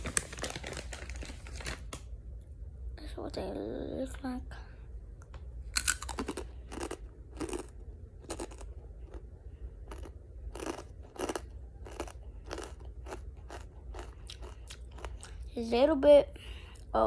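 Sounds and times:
crunchy chewing of chips: 5.7 - 15.5.

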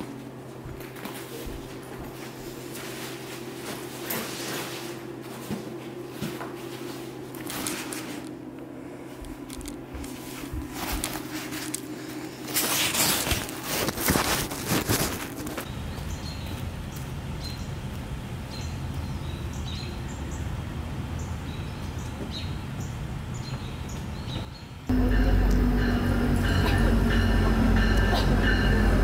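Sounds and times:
steady low hum: 0.0 - 29.0
fabric rustling: 9.4 - 15.7.

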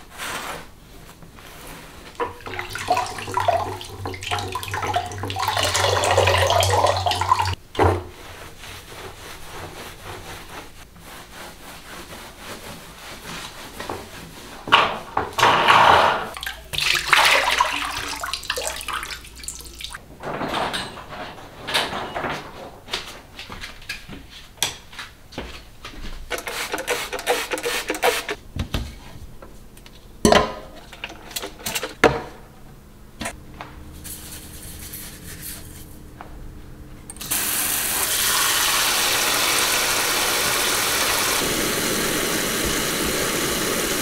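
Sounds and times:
water splashing on tiled floor: 16.3 - 20.0.

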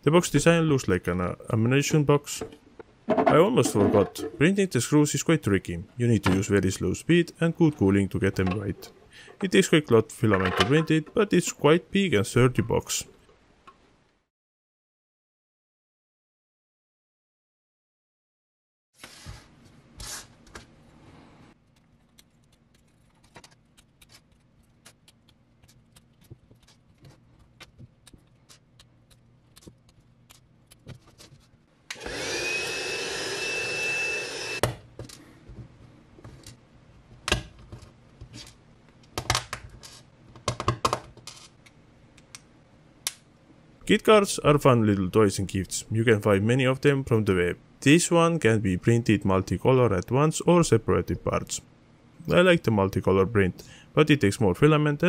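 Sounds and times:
small motor whining: 32.0 - 34.6.

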